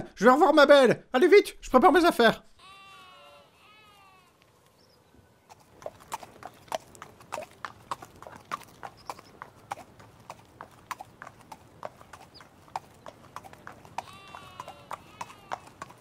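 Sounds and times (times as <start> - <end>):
donkey hooves clip-clopping: 4.0 - 16.0.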